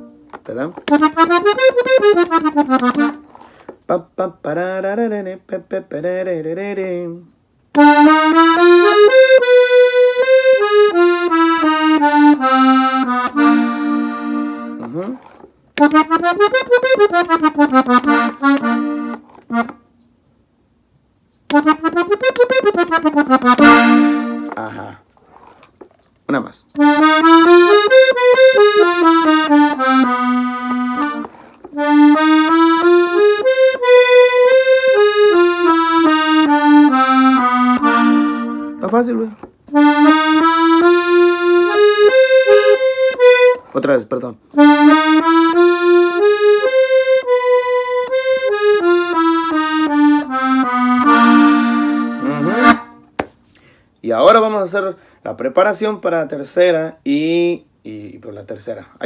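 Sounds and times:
accordion melodic run: 0:00.0 - 0:04.1, 0:07.7 - 0:20.0, 0:21.5 - 0:25.7, 0:26.8 - 0:53.2.

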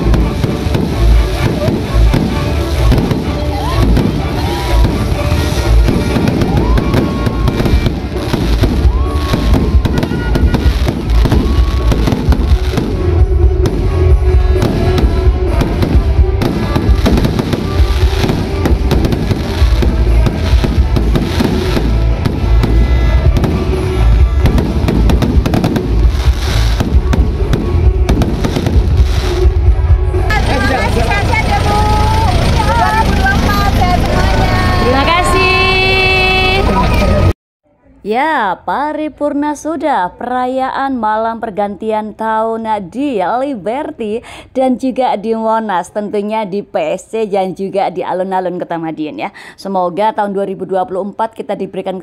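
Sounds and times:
fireworks bangs and crackles: 0:00.0 - 0:37.3.

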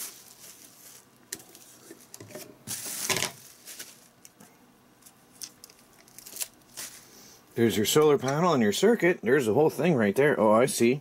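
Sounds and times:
bubble wrap rustling: 0:00.0 - 0:04.4, 0:05.0 - 0:07.2.

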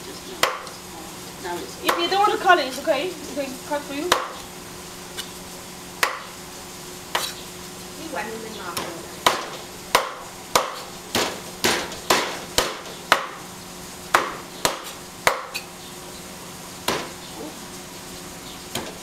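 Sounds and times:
cleaver chopping on wooden block: 0:00.4 - 0:00.7, 0:04.1 - 0:04.4, 0:06.0 - 0:06.3, 0:08.8 - 0:13.4, 0:14.1 - 0:15.7, 0:16.9 - 0:17.2.

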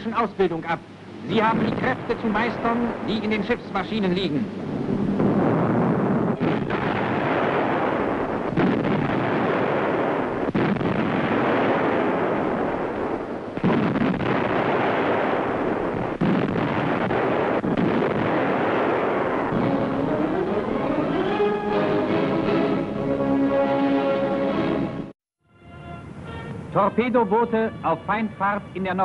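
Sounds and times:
sharp gunshots: 0:01.3 - 0:04.3, 0:05.2 - 0:21.4
heavy gunfire rumble: 0:01.3 - 0:20.9.

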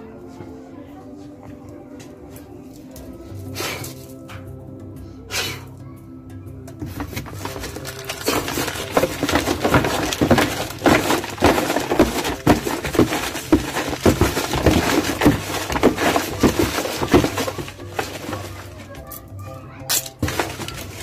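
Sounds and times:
rummaging in cardboard box: 0:06.8 - 0:19.2, 0:19.9 - 0:21.0.

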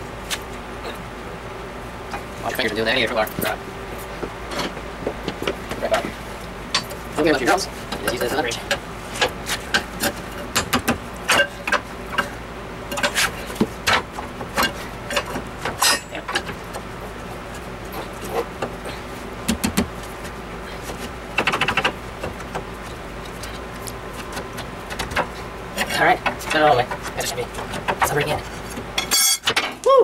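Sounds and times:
faint steady hum: 0:00.0 - 0:30.0
pry bar clanking on metal: 0:13.9 - 0:16.6, 0:24.9 - 0:29.8.

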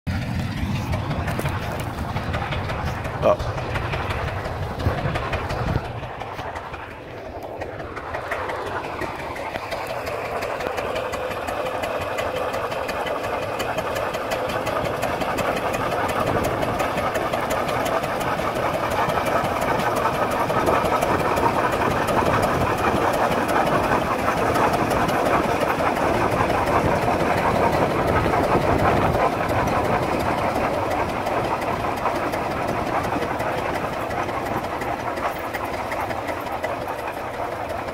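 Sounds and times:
tractor engine running under load: 0:00.1 - 0:37.9.

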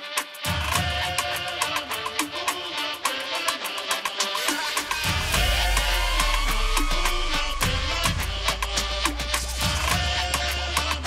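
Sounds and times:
electronic dance music: 0:00.0 - 0:11.0
steady drum beat: 0:00.4 - 0:11.0
rising tone: 0:04.8 - 0:10.8
heavy deep bass: 0:05.0 - 0:11.0.

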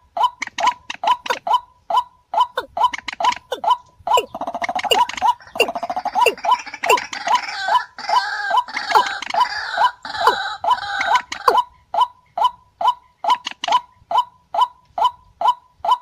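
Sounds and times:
harsh overlapping bird calls: 0:00.0 - 0:14.6
rail bird short calls: 0:03.5 - 0:07.0.

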